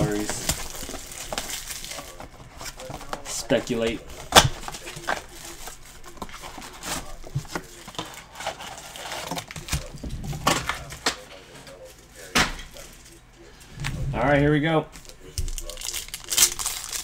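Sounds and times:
plastic shrink wrap crinkling: 0:00.0 - 0:11.1, 0:14.9 - 0:17.0
packs clacking: 0:00.0 - 0:11.3
cardboard and foil packs rustling: 0:00.0 - 0:13.3, 0:14.9 - 0:17.0.

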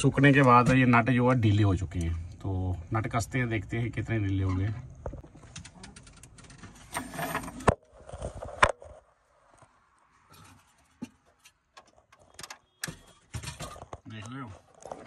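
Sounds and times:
metal spanner scraping: 0:05.9 - 0:07.8.

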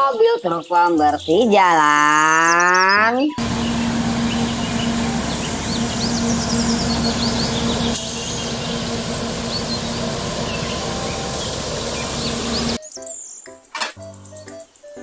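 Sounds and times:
small birds chirping: 0:00.0 - 0:15.0
steady machine hum: 0:03.4 - 0:12.8
street sweeper rushing noise: 0:03.4 - 0:12.8.

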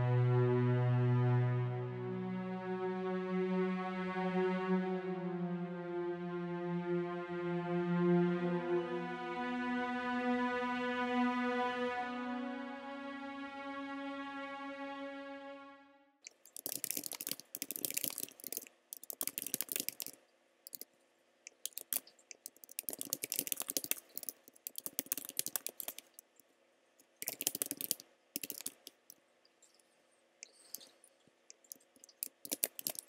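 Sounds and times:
sustained musical chord: 0:00.0 - 0:16.2
computer keyboard typing: 0:16.4 - 0:20.8, 0:21.5 - 0:26.3, 0:27.2 - 0:29.2, 0:31.6 - 0:33.0.

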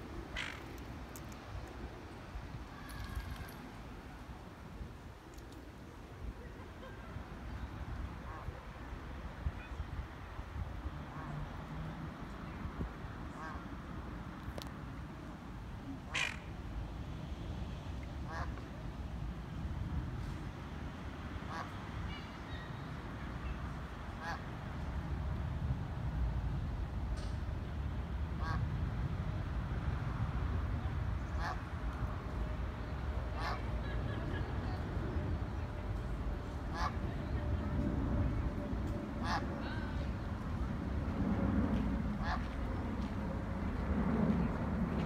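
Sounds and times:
coot calls: 0:36.7 - 0:37.0.

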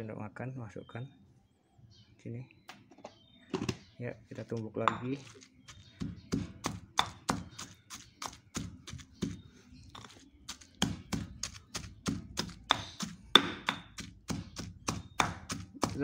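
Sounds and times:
stone pestle pounding in mortar: 0:04.8 - 0:09.4, 0:10.0 - 0:16.0.

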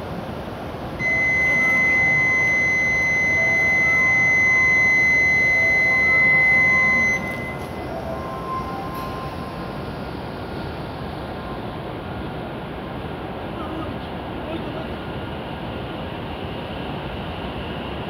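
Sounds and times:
high-pitched warning buzzer: 0:01.0 - 0:07.9.

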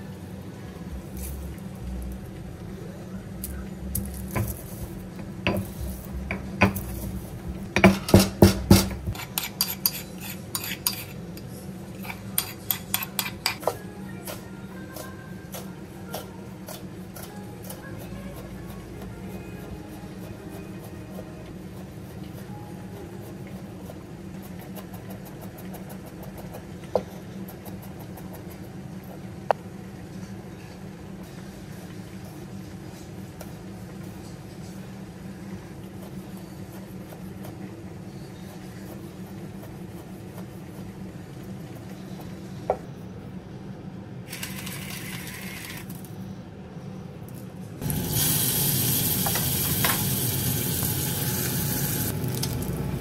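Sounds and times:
salt grinder grinding: 0:44.3 - 0:45.9.

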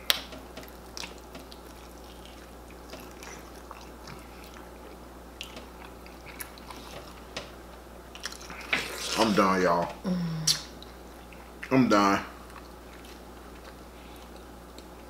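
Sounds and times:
people chewing open-mouthed: 0:00.0 - 0:07.4, 0:08.1 - 0:09.3, 0:12.4 - 0:15.0
low room hum: 0:00.0 - 0:15.0.

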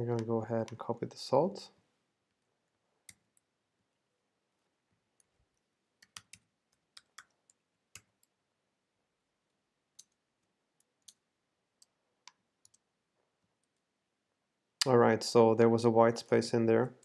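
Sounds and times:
computer keys and mouse clicks: 0:06.0 - 0:08.4, 0:09.9 - 0:12.9.

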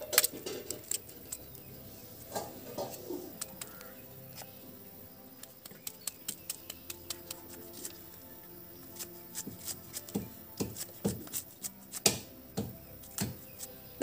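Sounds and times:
knife chopping florets: 0:05.4 - 0:08.0, 0:08.9 - 0:13.7.

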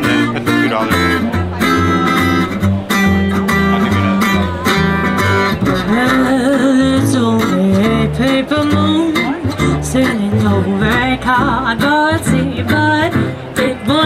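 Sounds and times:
acoustic guitar music: 0:00.0 - 0:14.0
person singing: 0:03.6 - 0:14.0.

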